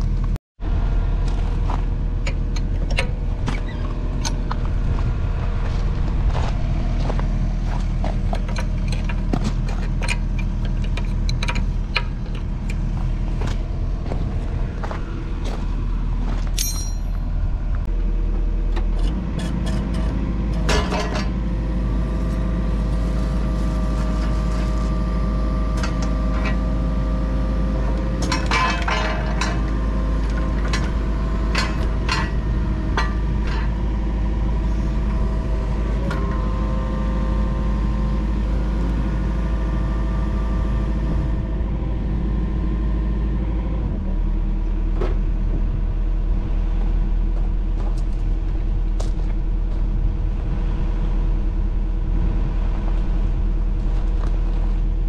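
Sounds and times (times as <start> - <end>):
diesel engine running: 0.0 - 55.0
sharp metal clinks: 16.6 - 17.2.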